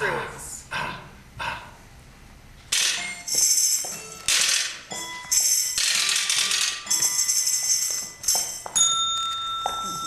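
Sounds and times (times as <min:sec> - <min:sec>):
small bells jingling: 0:06.8 - 0:10.0.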